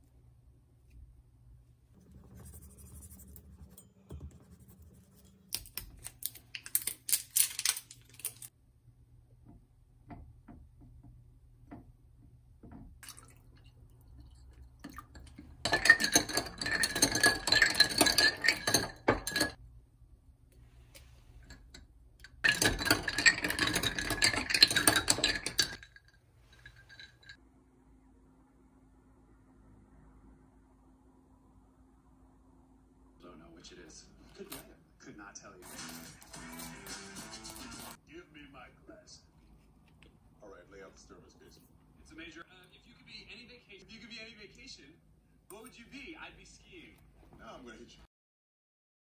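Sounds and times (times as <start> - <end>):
metal spoon stirring in glass: 15.0 - 19.6, 21.4 - 27.4.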